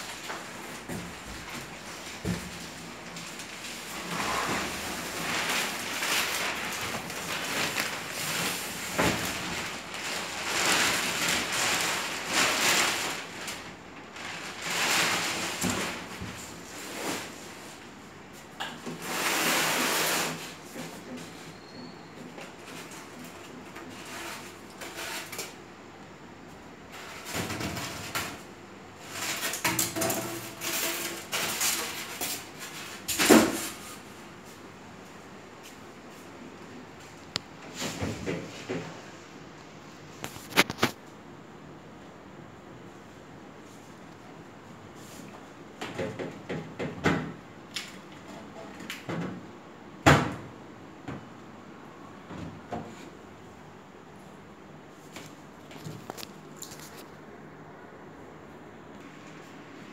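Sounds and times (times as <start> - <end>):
plastic parts knocking and clattering: 0.0 - 16.4, 29.1 - 33.8
refrigerator scraping and rubbing: 0.0 - 18.0, 18.8 - 25.6, 26.9 - 34.6, 37.6 - 39.0, 40.2 - 41.0.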